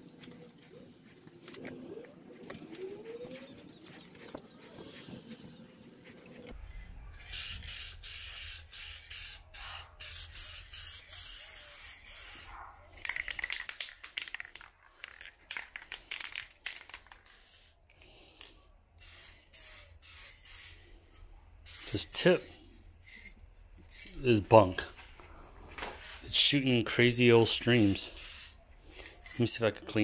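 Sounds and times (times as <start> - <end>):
aerosol spray hissing: 7.2 - 12.5, 19.0 - 20.8, 21.6 - 22.2, 27.5 - 29.1.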